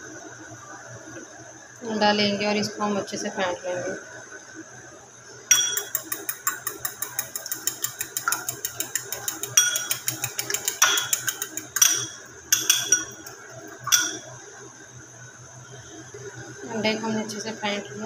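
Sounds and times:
fork clicking against glass bowl: 5.5 - 14.3.

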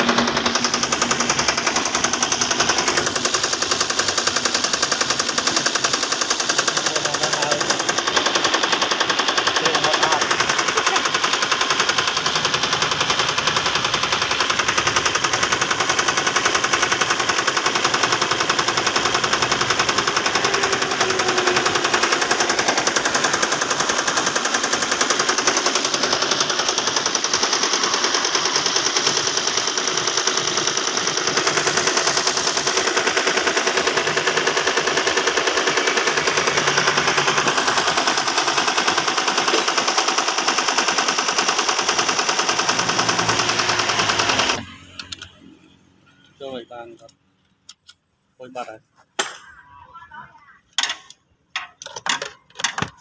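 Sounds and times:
car engine clattering: 0.0 - 40.4.

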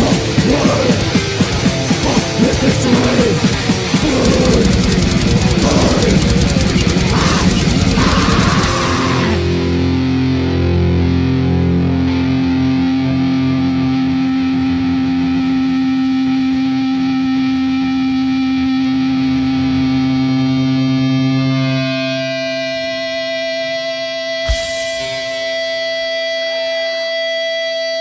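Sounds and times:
band with drums: 0.0 - 9.8, 24.5 - 26.0
distorted electric guitar chord ringing: 0.1 - 28.0.

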